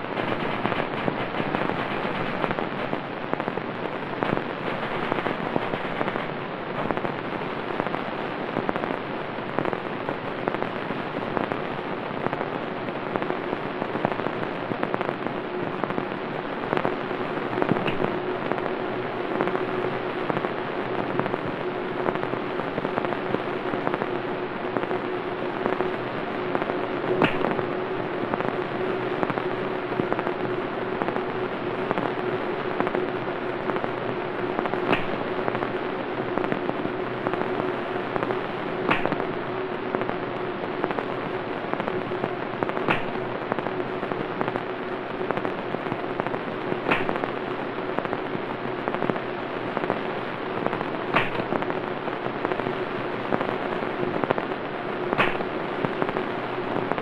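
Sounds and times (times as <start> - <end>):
crackling hiss: 0.0 - 57.0
low hum: 0.0 - 57.0
sharp click: 27.2 - 27.5, 34.9 - 35.2, 38.9 - 39.2, 46.9 - 47.2, 51.2 - 51.5, 55.2 - 55.4.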